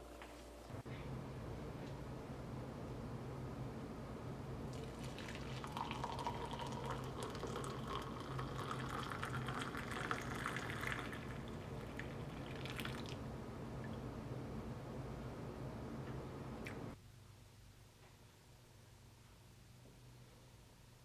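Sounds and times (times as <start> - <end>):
coffee pouring into a mug: 4.7 - 13.2.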